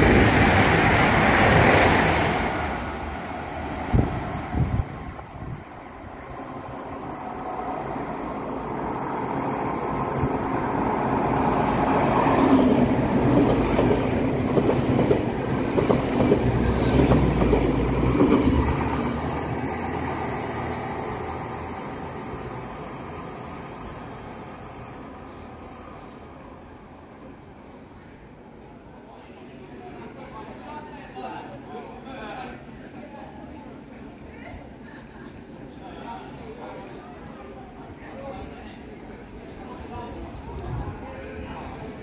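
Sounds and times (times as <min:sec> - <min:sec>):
train passing: 0:00.0 - 0:29.4.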